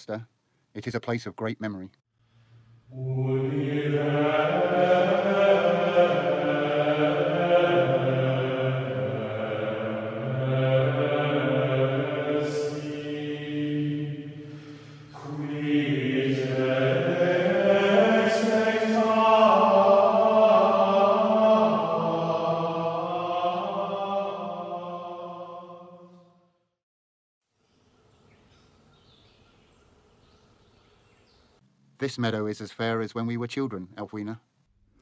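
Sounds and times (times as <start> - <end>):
low voices chanting: 2.8 - 26.3.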